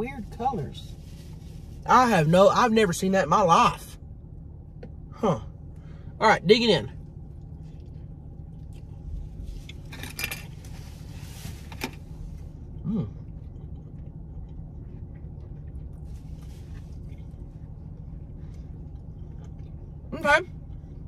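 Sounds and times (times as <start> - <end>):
low hum inside a car: 0.0 - 21.0
rustling: 9.0 - 12.6
people chewing and eating: 12.4 - 21.0.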